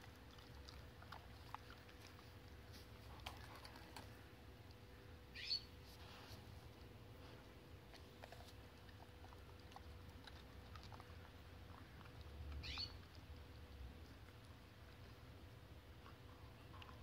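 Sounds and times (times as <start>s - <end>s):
dog chewing crunches: 0.0s - 4.8s, 6.7s - 15.0s.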